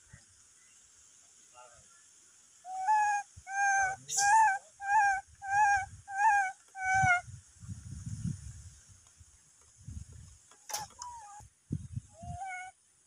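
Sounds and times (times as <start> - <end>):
monkey coo calls: 2.7 - 7.2, 10.8 - 11.4, 12.2 - 12.8.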